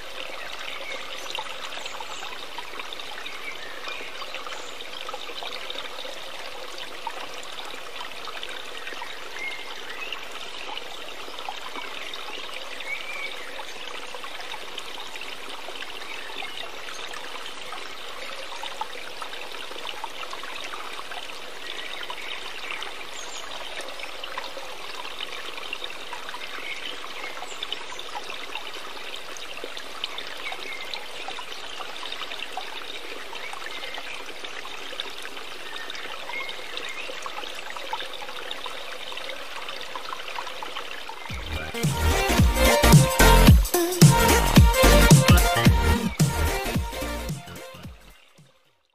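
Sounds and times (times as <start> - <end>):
trickling stream: 0.0 - 48.9.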